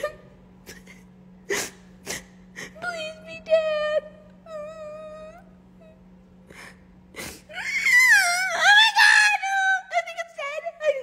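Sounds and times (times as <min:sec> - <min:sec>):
woman whimpering and whining: 0:00.0 - 0:06.0.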